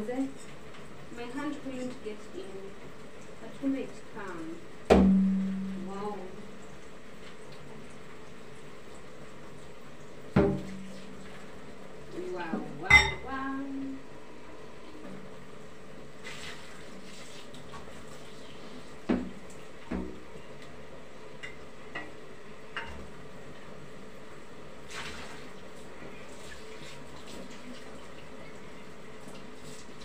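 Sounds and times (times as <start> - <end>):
water running and splashing: 5.6 - 12.9, 16.1 - 19.9, 24.8 - 30.0
jar clinking against sink: 12.9 - 13.2.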